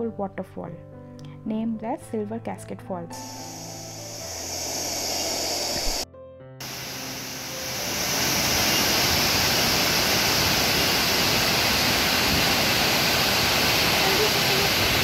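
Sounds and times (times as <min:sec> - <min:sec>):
waterfall rushing: 0:03.2 - 0:06.0, 0:06.6 - 0:15.0.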